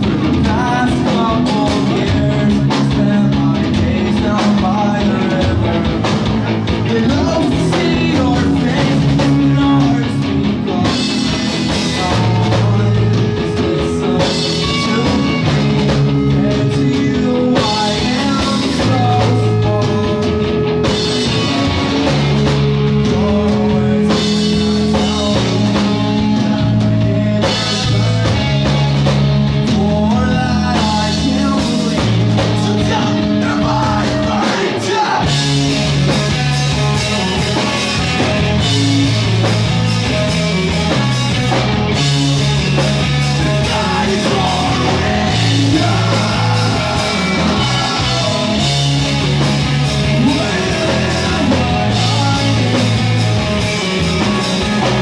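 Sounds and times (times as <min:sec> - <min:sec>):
bass guitar: 0:00.0 - 0:55.0
drum kit with cymbals: 0:00.0 - 0:55.0
electric guitars: 0:00.0 - 0:55.0
man singing: 0:00.0 - 0:55.0.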